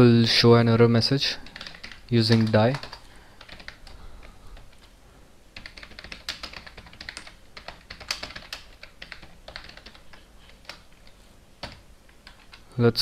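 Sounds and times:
typing on computer keyboard: 1.4 - 4.0, 5.6 - 12.6.

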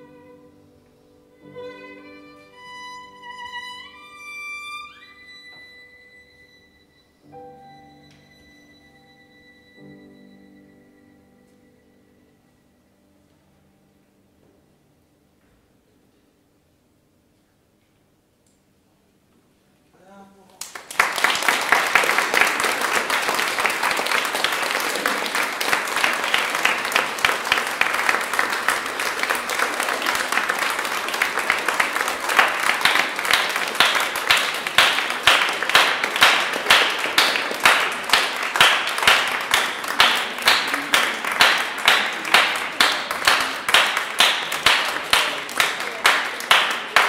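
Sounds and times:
audience applauding: 20.6 - 47.0
rhythmic clapping in unison: 20.6 - 47.0.

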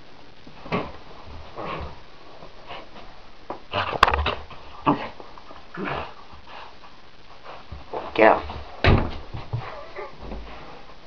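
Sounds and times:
puppy whining: 9.5 - 10.3.

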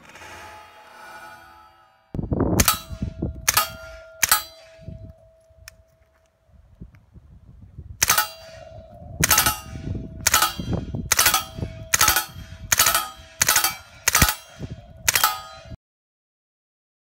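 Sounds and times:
steel target ringing: 0.2 - 6.0, 8.0 - 15.8
suppressed gunshots: 8.0 - 15.7.

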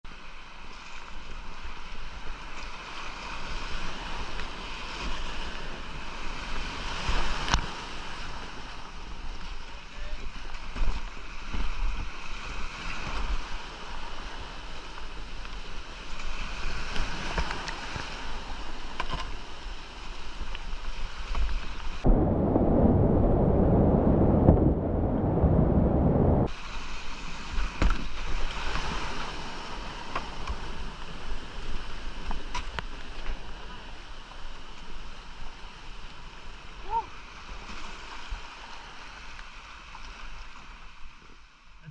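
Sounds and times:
whitewater rushing: 22.0 - 26.5.

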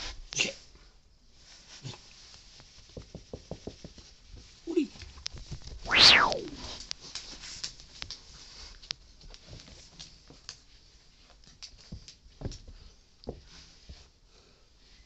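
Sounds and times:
paws and toy pattering on carpet: 1.4 - 5.7, 6.9 - 14.2
swish at microphone: 5.9 - 6.7.

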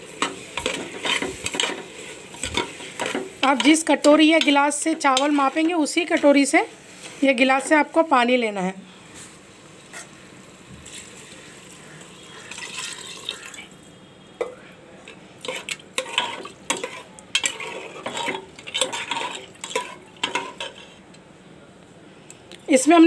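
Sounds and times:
ladle scraping and clinking pot: 0.2 - 6.4, 15.4 - 21.0.

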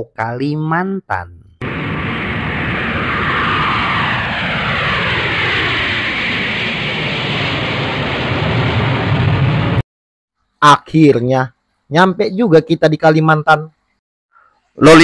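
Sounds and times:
aircraft engine rush: 1.6 - 9.8.

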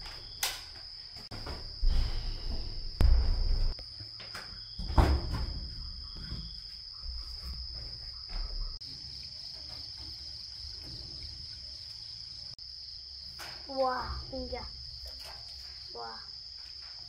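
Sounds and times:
crickets chirring: 0.0 - 17.0.

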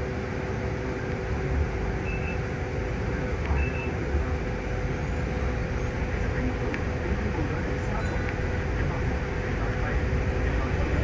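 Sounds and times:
bus engine rumble: 0.0 - 11.0
faint high beeps: 2.0 - 2.4, 3.5 - 4.0.

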